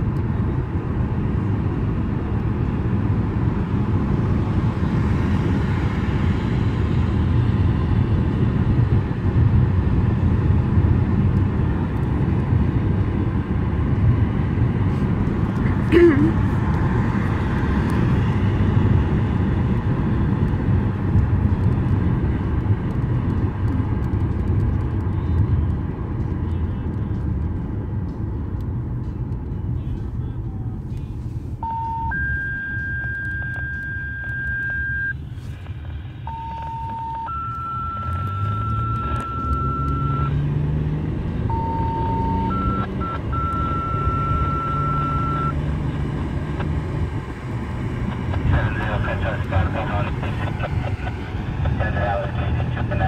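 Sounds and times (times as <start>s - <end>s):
car road noise: 0.0s - 53.0s.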